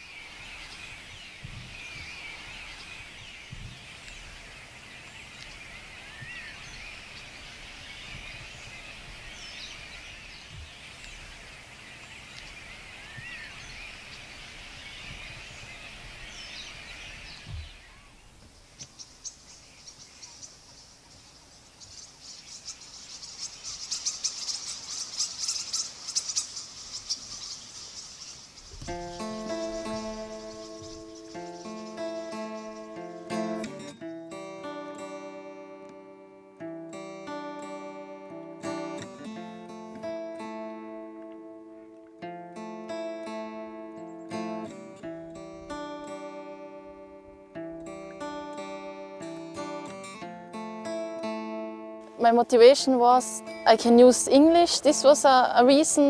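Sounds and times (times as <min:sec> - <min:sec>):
small birds chirping: 0:00.0 - 0:36.4, 0:37.0 - 0:56.0
high-pitched ticking chirr: 0:21.9 - 0:33.8.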